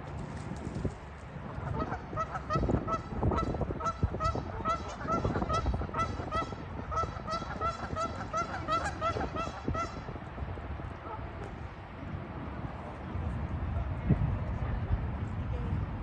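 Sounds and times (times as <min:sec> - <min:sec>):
geese honking: 0:01.6 - 0:10.1.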